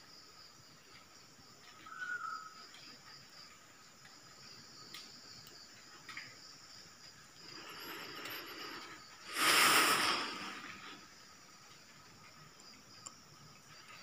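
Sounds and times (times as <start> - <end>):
crickets trilling: 0.0 - 14.0
faint clicks: 2.6 - 6.4, 11.7 - 14.0
loud hissing rush: 7.4 - 11.5.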